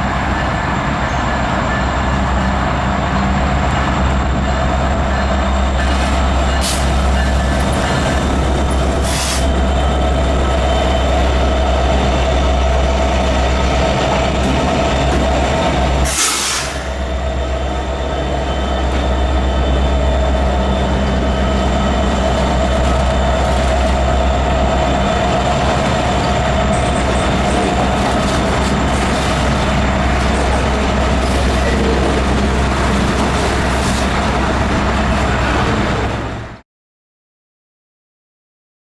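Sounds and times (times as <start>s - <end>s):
diesel locomotive engines droning: 0.0s - 36.6s
freight cars rolling on rails: 0.0s - 36.6s
loud air hiss: 9.0s - 9.5s, 16.0s - 17.0s.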